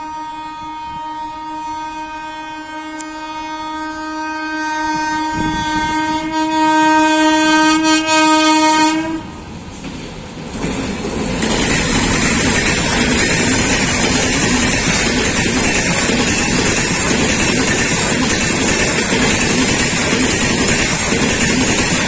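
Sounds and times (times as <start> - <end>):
train horn blast: 0.0 - 9.5
train wheels rattling on rails: 9.4 - 22.0.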